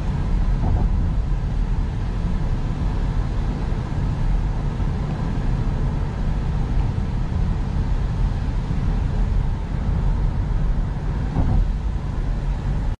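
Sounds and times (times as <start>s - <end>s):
road and engine noise in car: 0.0s - 12.9s.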